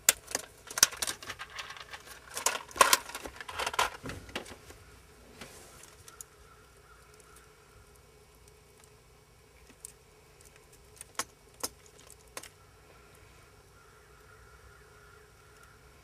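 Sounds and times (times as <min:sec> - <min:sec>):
plugs and wires clicking and rattling: 0:00.0 - 0:04.8, 0:09.6 - 0:12.6
faint steady hum: 0:00.0 - 0:16.0.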